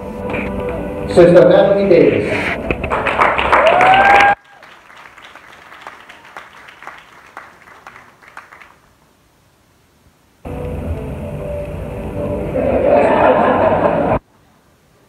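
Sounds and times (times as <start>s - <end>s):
audience applause: 2.8s - 8.9s.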